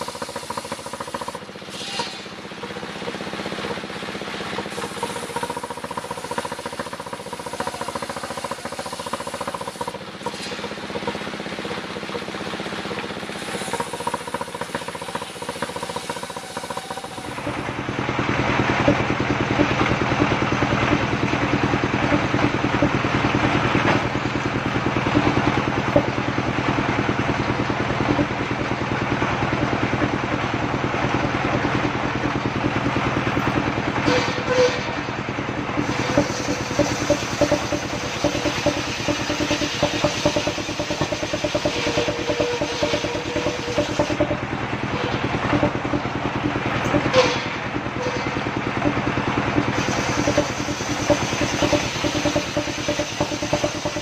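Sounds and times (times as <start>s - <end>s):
circular saw cutting wood: 0.0s - 2.4s, 4.6s - 11.2s, 13.0s - 17.9s, 34.0s - 54.0s
engine hum: 0.0s - 54.0s.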